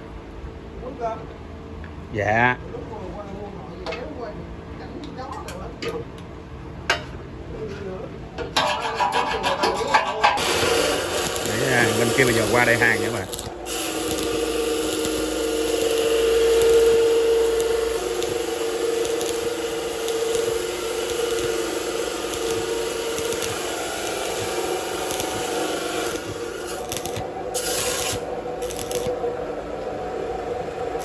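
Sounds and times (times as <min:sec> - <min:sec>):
steady hum: 0:00.0 - 0:31.0
arc welding crackling hiss: 0:10.2 - 0:29.3.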